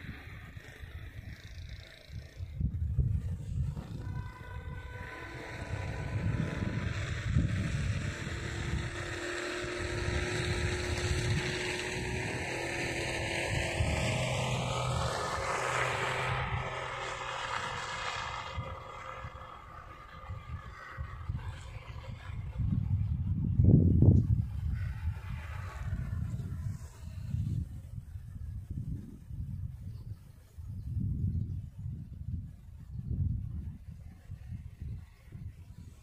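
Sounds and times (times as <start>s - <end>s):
car passing: 0.0s - 28.8s.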